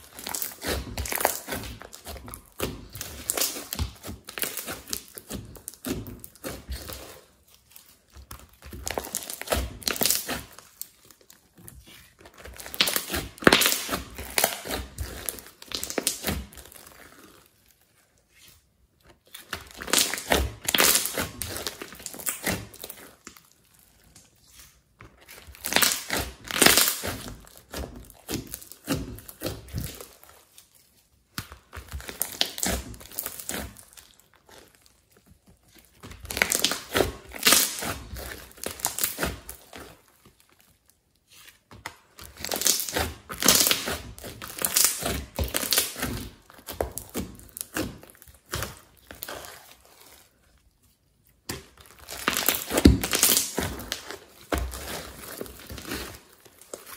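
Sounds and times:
slime squishing and popping: 0.0s - 17.5s, 19.2s - 24.2s, 25.1s - 30.6s, 31.3s - 41.0s, 41.6s - 50.3s, 51.3s - 56.9s.

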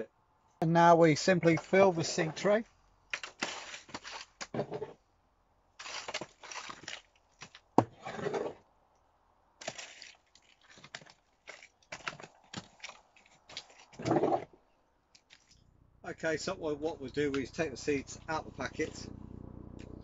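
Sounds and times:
trowel scraping compost: 1.4s - 5.0s, 5.8s - 8.6s.

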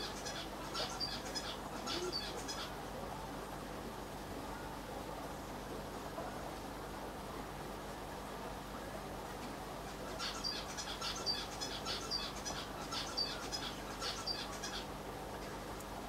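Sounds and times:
small bird chirping: 0.0s - 2.8s, 10.0s - 14.9s
low background hum: 0.0s - 16.0s.

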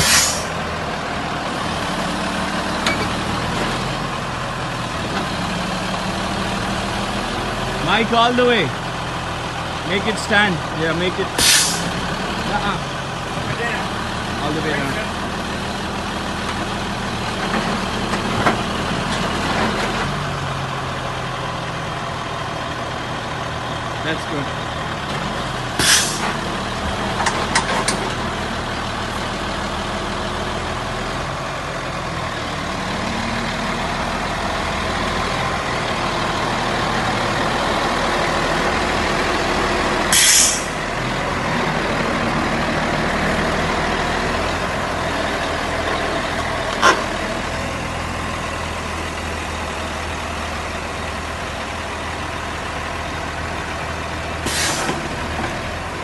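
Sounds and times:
short hisses: 0.0s - 0.6s, 11.4s - 11.9s, 25.8s - 26.2s, 40.1s - 40.8s, 54.5s - 55.0s
diesel engine running: 0.0s - 56.0s.

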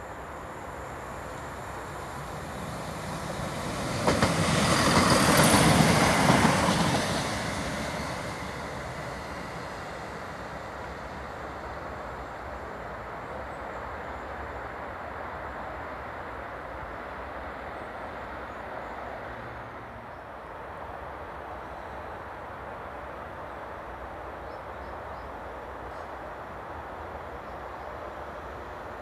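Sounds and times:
train rumbling past: 0.0s - 29.0s
train wheel clacks: 3.3s - 8.1s.

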